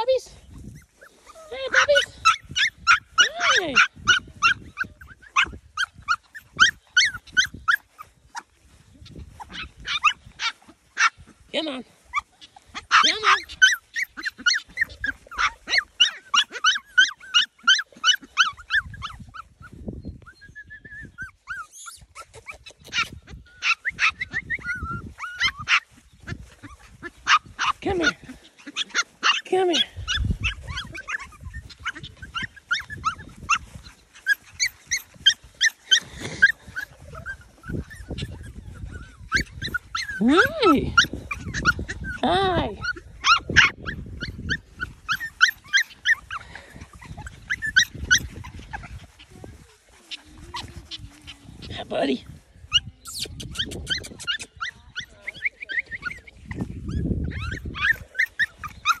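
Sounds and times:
puppies whining and yipping: 0.0s - 59.0s.

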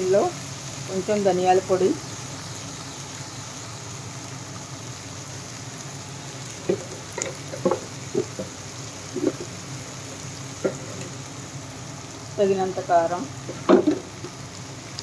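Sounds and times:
curry sizzling in a pan: 0.0s - 15.0s.

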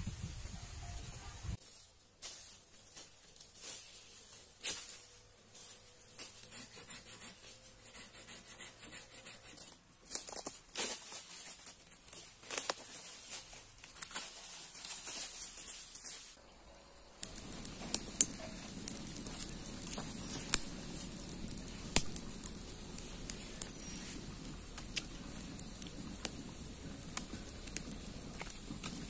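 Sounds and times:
footsteps through undergrowth: 1.6s - 6.5s, 10.0s - 16.4s
campfire crackling and popping: 16.4s - 29.0s.

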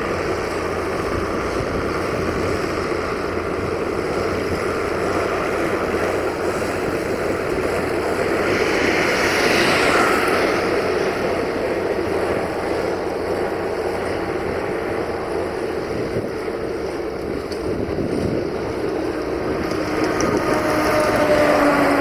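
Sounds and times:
tractor diesel engine under load: 0.0s - 22.0s.

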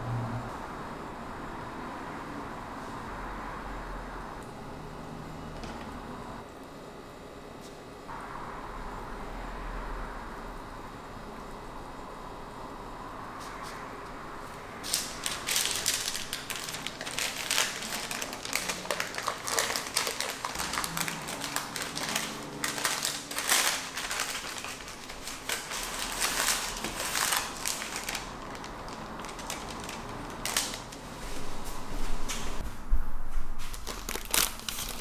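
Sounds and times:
paper crinkling and rustling: 14.8s - 31.6s, 33.6s - 35.0s.

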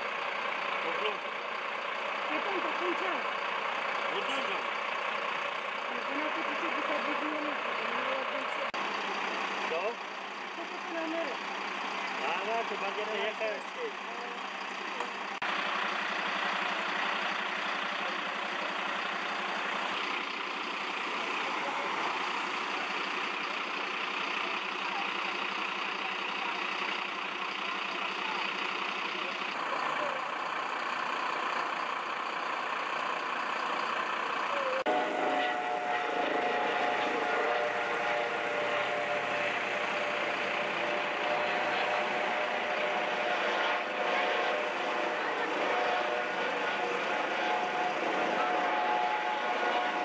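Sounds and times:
diesel engines idling: 0.0s - 50.0s.

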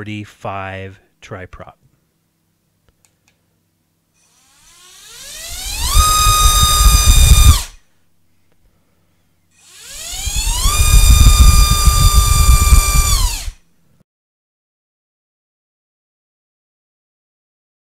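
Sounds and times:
electric motor propeller whine: 4.2s - 7.8s, 9.6s - 13.6s.

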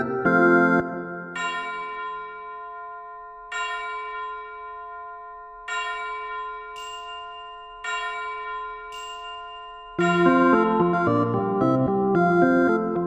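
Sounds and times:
bell-like chord: 0.0s - 13.0s
high shimmer: 8.9s - 11.3s.

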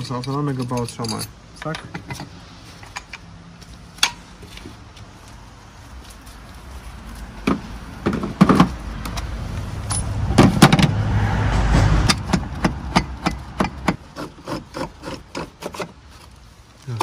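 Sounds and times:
metal tools clanking: 0.0s - 3.2s.

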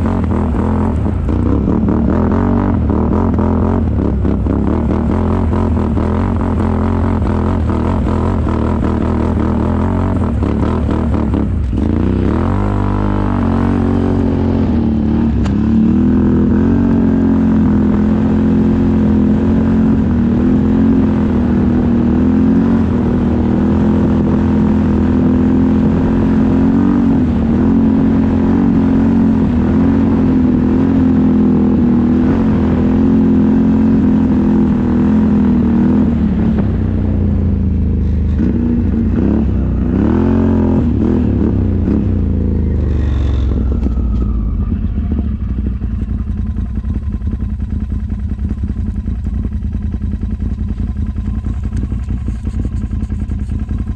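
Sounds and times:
atv engine running: 0.0s - 53.9s.

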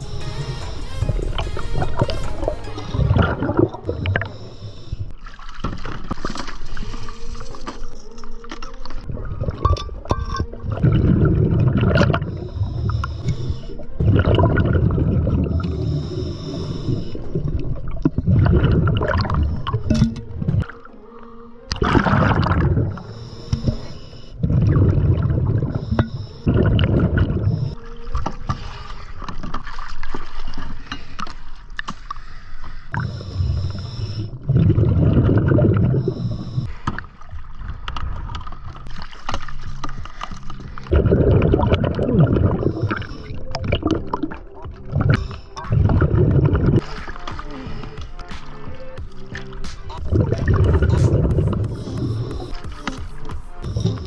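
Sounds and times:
exhaled air bubbling underwater: 0.0s - 54.0s
scuba regulator inhale hiss: 15.6s - 17.2s, 32.1s - 34.3s.

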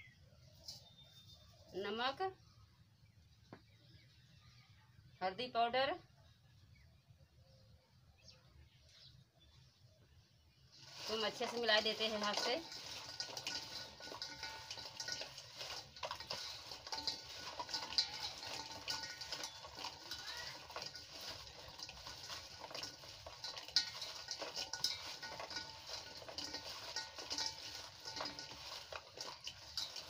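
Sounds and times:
food pieces clicking in steel bowl: 10.9s - 30.0s.

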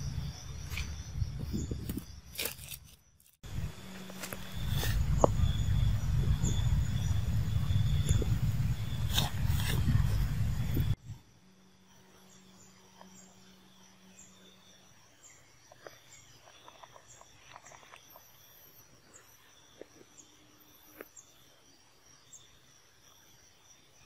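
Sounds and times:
steady high hum: 3.4s - 14.6s.

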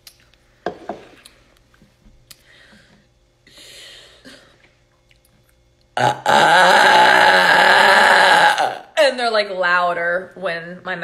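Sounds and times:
woman burping: 6.0s - 9.0s.

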